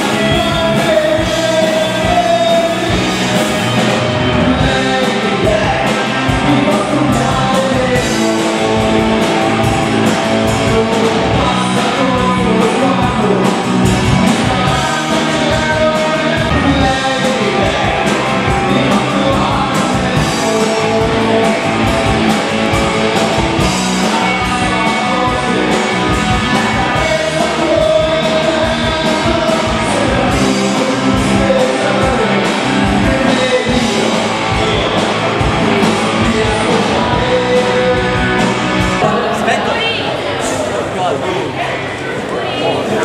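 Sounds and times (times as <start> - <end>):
rock music with singing: 0.0 - 43.0.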